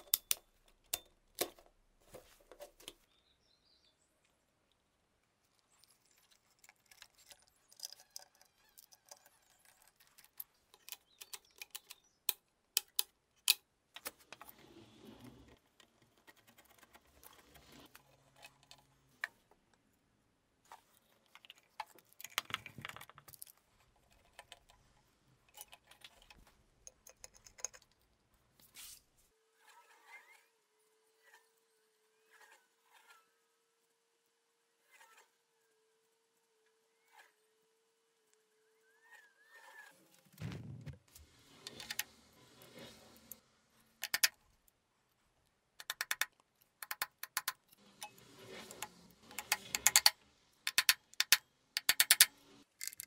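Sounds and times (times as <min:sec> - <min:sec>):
tools and parts clicking and clattering: 0:00.0 - 0:03.0, 0:25.4 - 0:28.1, 0:44.0 - 0:44.4, 0:45.8 - 0:48.2, 0:49.3 - 0:53.0.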